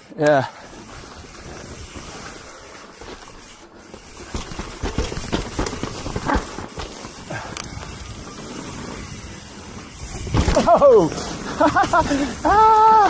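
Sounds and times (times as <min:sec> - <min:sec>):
bike rattling over rough ground: 0:00.0 - 0:13.0
steady rushing noise: 0:00.0 - 0:13.0.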